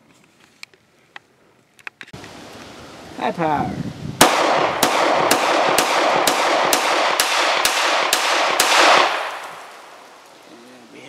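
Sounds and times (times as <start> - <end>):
pistol shots echoing: 4.2 - 10.0.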